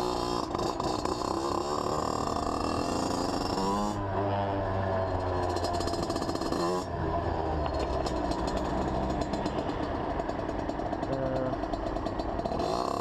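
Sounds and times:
two-stroke motorcycle engine: 0.0s - 13.0s.

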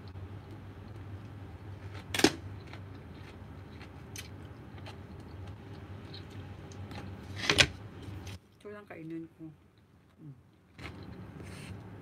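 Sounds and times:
faint chewing crunches: 0.0s - 7.4s.

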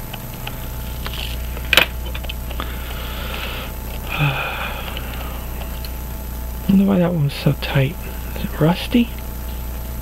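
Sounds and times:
person breathing out heavily: 2.6s - 5.5s.

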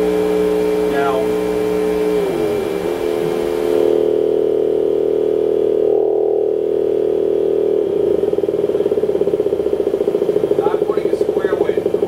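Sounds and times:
loud steady horn tone: 0.0s - 8.7s.

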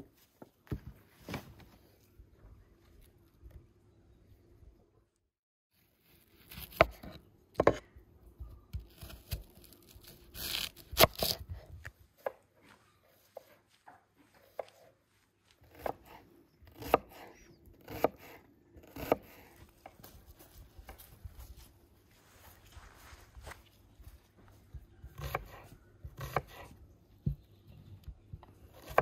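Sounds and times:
knife cutting onions on board: 25.1s - 26.7s.

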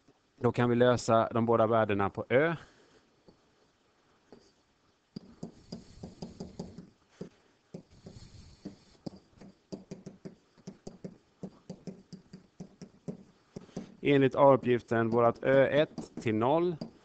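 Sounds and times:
stylus tapping and scratching: 5.2s - 17.0s.

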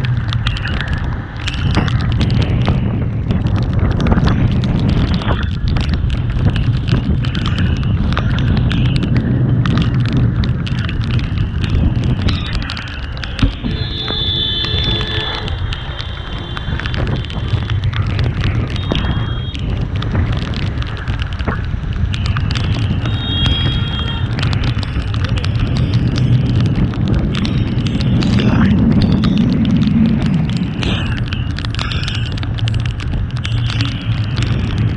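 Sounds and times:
scattered ticks: 0.0s - 34.9s
wind buffeting microphone: 0.0s - 34.9s
high-pitched tone: 13.4s - 17.1s.

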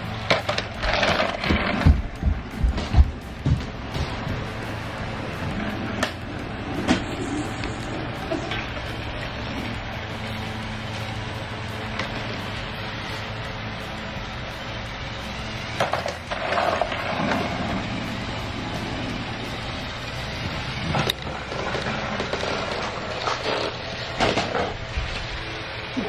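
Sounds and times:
toy train motor whir: 4.4s - 26.0s
toy trains clicking on track: 20.2s - 24.8s.

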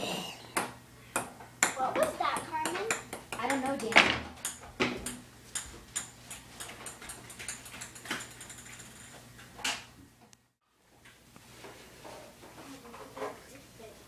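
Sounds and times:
ping-pong ball clicking: 0.6s - 8.7s.

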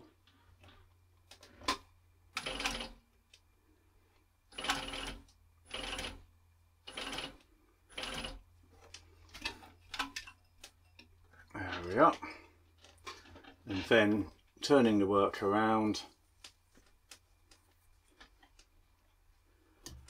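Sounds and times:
sewing machine stitching leather: 2.4s - 3.0s, 4.5s - 6.2s, 6.9s - 8.4s.

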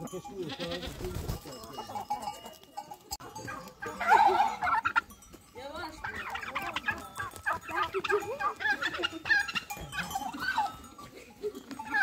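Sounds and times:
poultry clucking: 0.0s - 5.2s, 5.8s - 12.0s.

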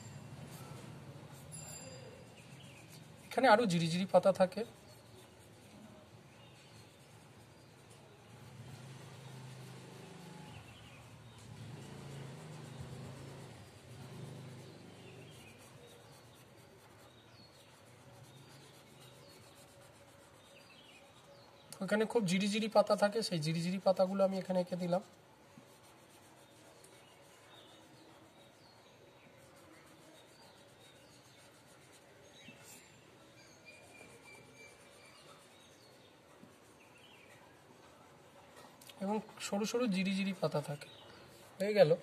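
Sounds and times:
marker scratching on whiteboard: 0.2s - 21.4s, 22.4s - 42.0s.

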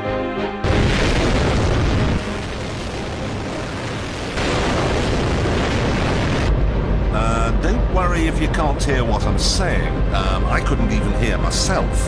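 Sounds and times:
music: 0.0s - 4.4s, 7.0s - 12.0s
rocket engine roaring: 0.6s - 7.7s.

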